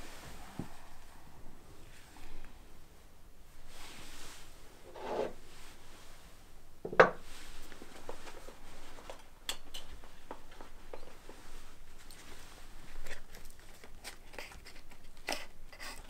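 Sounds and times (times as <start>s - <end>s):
ashtray rubbing on wooden table: 4.9s - 5.4s.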